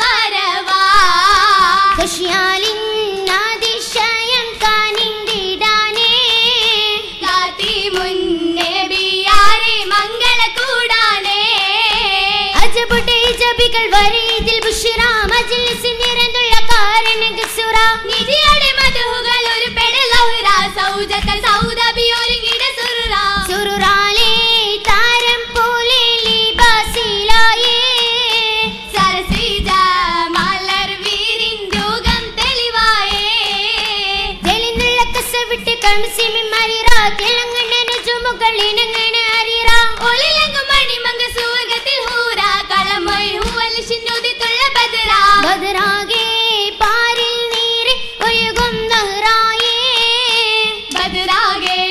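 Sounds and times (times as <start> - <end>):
girls singing: 0.0 - 51.9
hand claps: 0.0 - 51.9.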